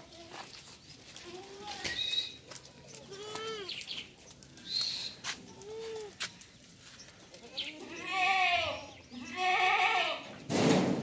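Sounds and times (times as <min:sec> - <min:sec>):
goats bleating: 0:02.9 - 0:03.8, 0:07.4 - 0:10.3.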